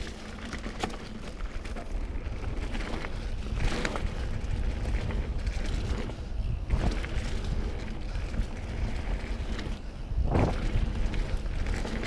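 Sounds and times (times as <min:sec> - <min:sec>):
bike rattling over bumps: 0:00.0 - 0:12.0
bike tyres rumbling on dirt: 0:00.0 - 0:12.0
wind on microphone: 0:03.1 - 0:12.0.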